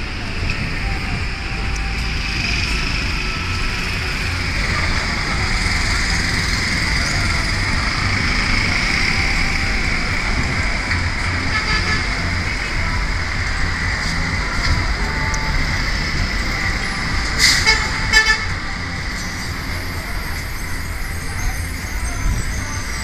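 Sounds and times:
passing buses and motorcycles rumble: 0:00.0 - 0:23.0
vehicle horn blasts: 0:11.4 - 0:12.4, 0:17.4 - 0:18.7.

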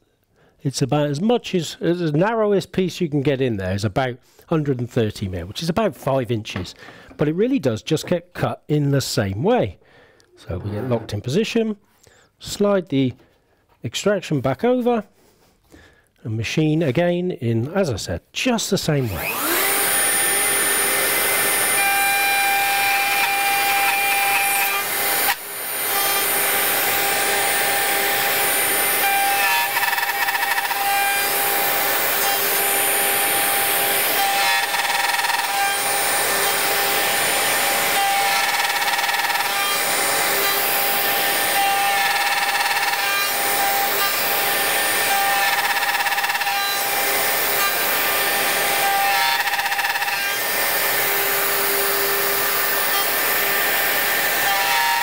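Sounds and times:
router whining and cutting wood: 0:19.0 - 0:55.0.

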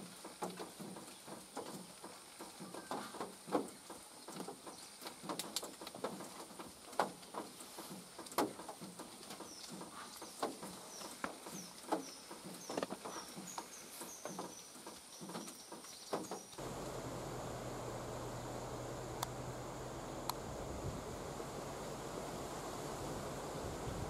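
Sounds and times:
steady hiss: 0:00.0 - 0:24.0
sharp clicks and crackles: 0:00.2 - 0:12.1, 0:19.1 - 0:19.5
low hum: 0:16.6 - 0:24.0.

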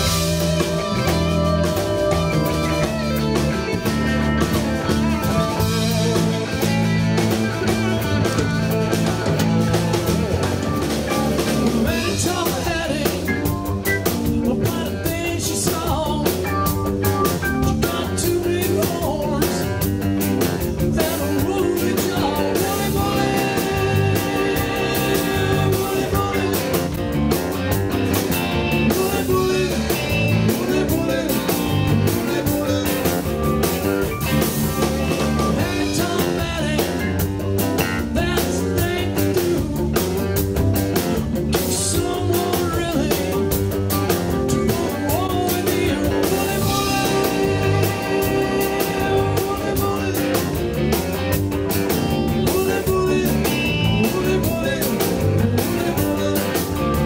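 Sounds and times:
drum kit: 0:00.0 - 0:57.0
electric bass: 0:00.0 - 0:57.0
electric guitars: 0:00.0 - 0:57.0
keyboard: 0:00.0 - 0:57.0.

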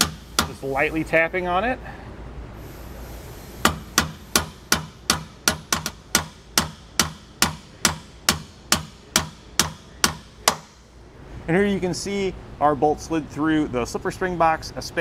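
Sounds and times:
hammer tapping a bolt: 0:00.0 - 0:00.6, 0:03.6 - 0:10.8.

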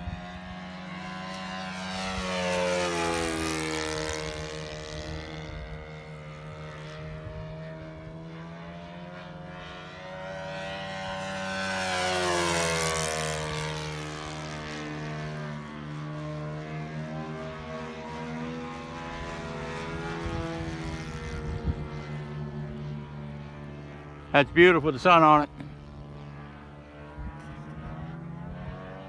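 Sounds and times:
model plane engine flying past: 0:00.0 - 0:29.0.

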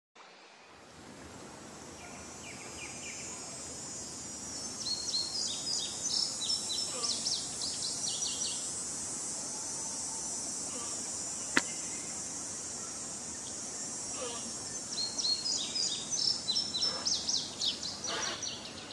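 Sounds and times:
high insect drone: 0:00.7 - 0:18.9
bird chirping: 0:04.1 - 0:08.7, 0:11.3 - 0:18.9
sharp click: 0:11.5 - 0:11.8.

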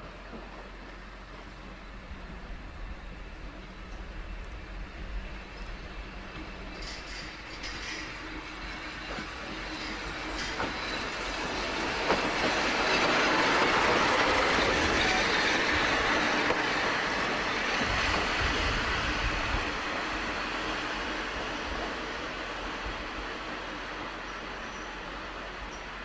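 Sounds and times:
diesel locomotive engine: 0:00.0 - 0:26.0
wheels on rails: 0:03.9 - 0:22.7.

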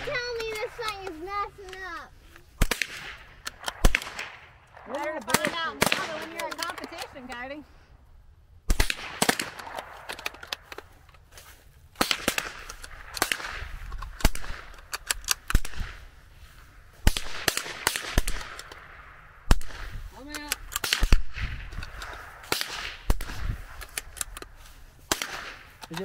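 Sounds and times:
rifle shots: 0:02.6 - 0:07.4, 0:08.7 - 0:10.9, 0:12.0 - 0:16.2, 0:17.0 - 0:26.0.

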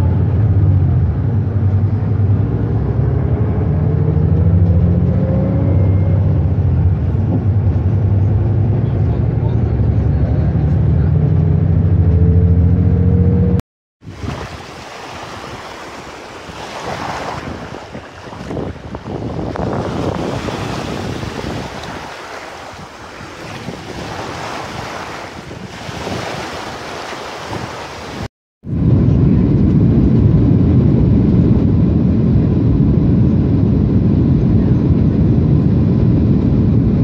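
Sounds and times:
vehicle engine hum inside cabin: 0:00.0 - 0:13.6
wind on microphone: 0:00.0 - 0:37.0
small waves washing on sand: 0:14.0 - 0:28.3.

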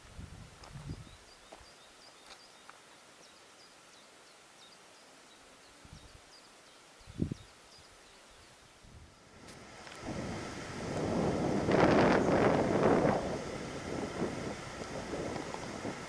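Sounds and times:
steady hiss: 0:00.0 - 0:16.0
faint bird chirps: 0:00.8 - 0:08.7.

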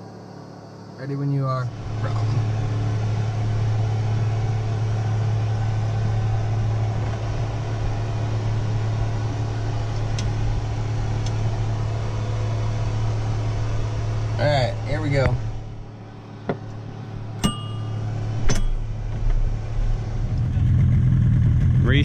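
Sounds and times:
electric machine hum: 0:00.0 - 0:22.0.

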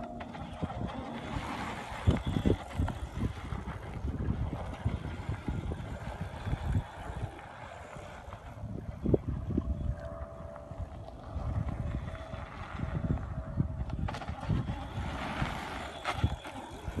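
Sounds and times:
bike tires rolling on dirt: 0:00.0 - 0:09.1, 0:10.9 - 0:17.0
wind buffeting microphone: 0:00.0 - 0:17.0.

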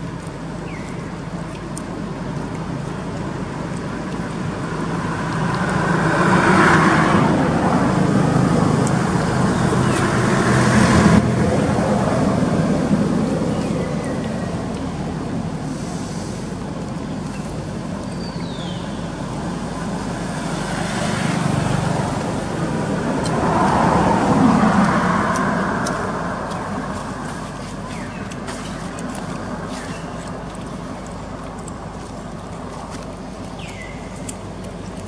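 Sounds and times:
road traffic: 0:00.0 - 0:35.0
vehicle passing: 0:04.9 - 0:15.2, 0:19.6 - 0:30.3.

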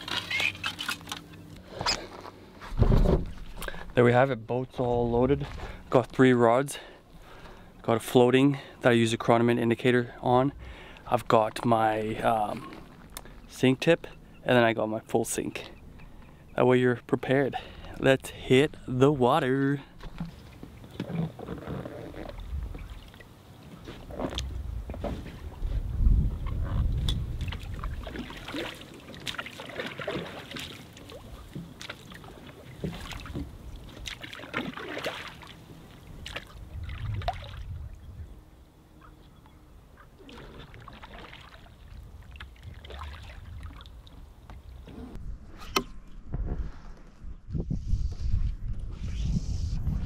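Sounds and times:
water sloshing and splashing: 0:00.0 - 0:04.0, 0:19.8 - 0:38.1, 0:40.0 - 0:44.9.

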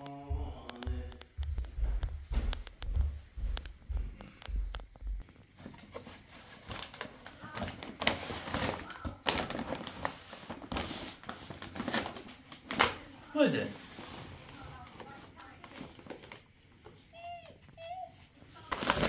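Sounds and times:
wrapping paper crinkling: 0:05.2 - 0:17.3, 0:17.9 - 0:19.0.

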